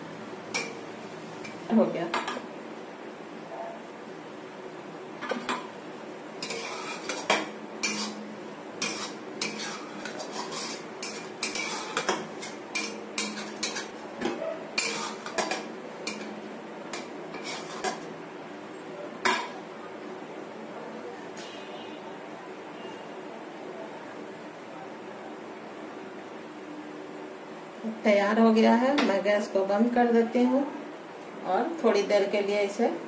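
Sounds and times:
spoon clinking and scraping pan: 0:00.5 - 0:00.8, 0:06.4 - 0:14.0, 0:14.8 - 0:18.1
spoon knocking pan: 0:08.8 - 0:18.0.

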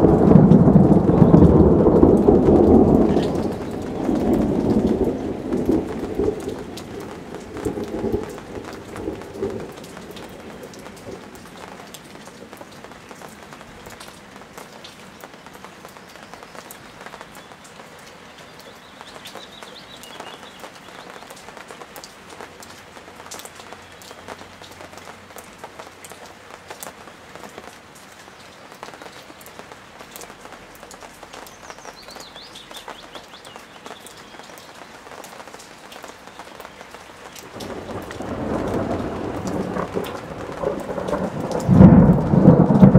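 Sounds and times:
thunder rumble: 0:00.0 - 0:11.7, 0:37.5 - 0:42.9
steady rain: 0:00.0 - 0:42.9.

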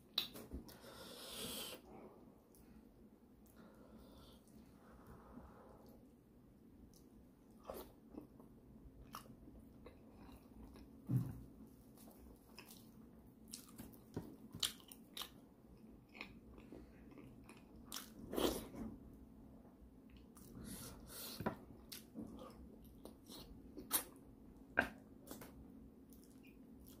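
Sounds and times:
man chewing: 0:12.5 - 0:18.8.

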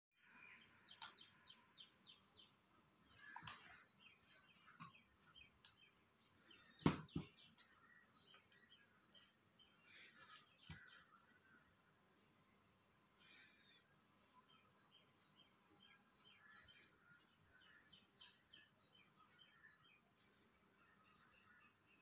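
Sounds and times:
faint birds chirping: 0:00.2 - 0:22.0.

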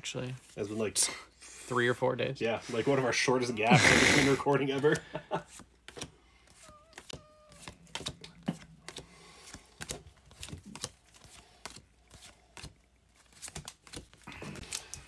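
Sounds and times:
cards flicking: 0:04.8 - 0:15.0.

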